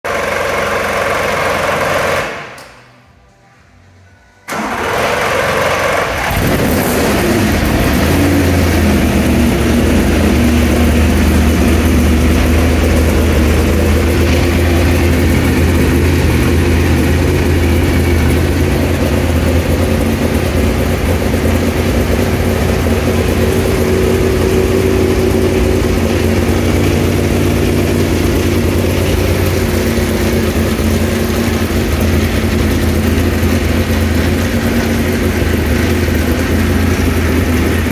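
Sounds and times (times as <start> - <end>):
race car engine idling: 0.1 - 2.2, 4.5 - 37.9.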